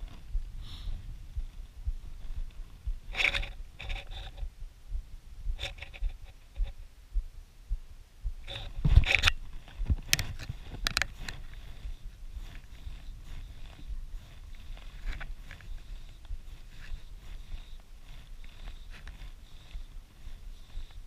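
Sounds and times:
wind rumble on microphone: 0.0s - 21.0s
scraping and rustling: 2.2s - 4.5s, 8.5s - 21.0s.

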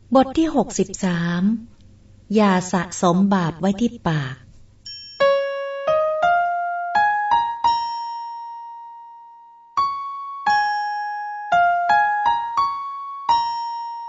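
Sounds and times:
slow electric piano melody: 5.2s - 14.0s.

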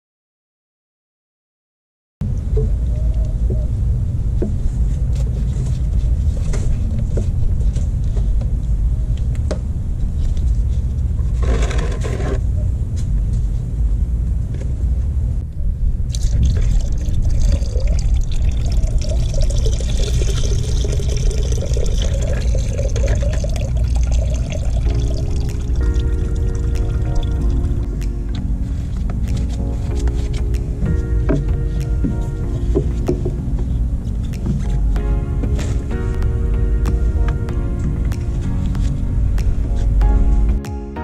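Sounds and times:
steady low rumble: 2.2s - 41.0s
liquid pouring into plastic bucket: 16.1s - 27.4s.

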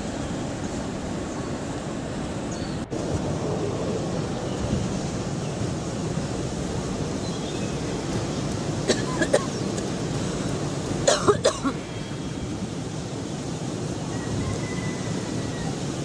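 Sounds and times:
wind noise: 0.0s - 16.0s
person coughing: 8.9s - 9.6s, 11.0s - 11.8s.

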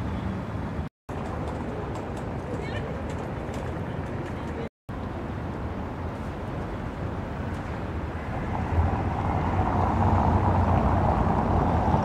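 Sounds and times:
traffic rumble: 0.0s - 12.0s
vehicle approaching: 6.3s - 12.0s.

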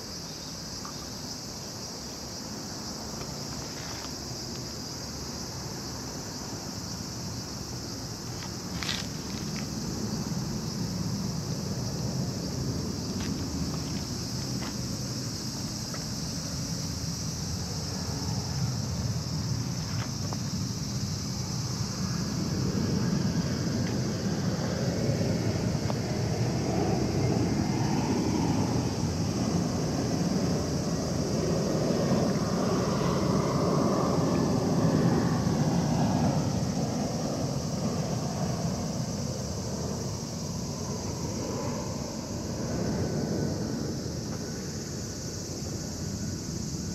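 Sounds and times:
insects shrilling: 0.0s - 26.2s.

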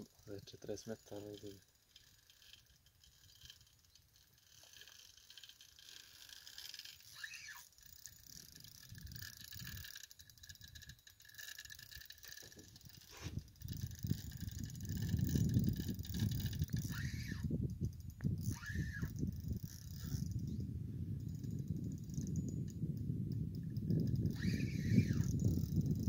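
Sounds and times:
fishing reel whirring and clicking: 0.0s - 26.0s.

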